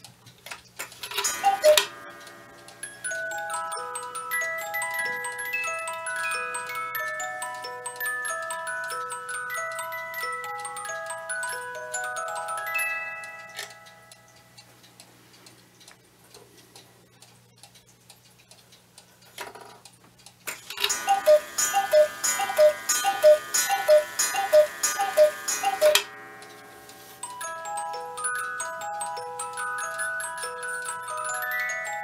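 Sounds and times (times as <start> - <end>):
clock ticking: 0.0 - 31.9
clock hands clattering: 0.8 - 2.1, 20.5 - 26.6
music-box waltz: 0.9 - 15.5, 20.5 - 32.0
two-note cuckoo calls: 1.2 - 2.0, 20.8 - 26.1.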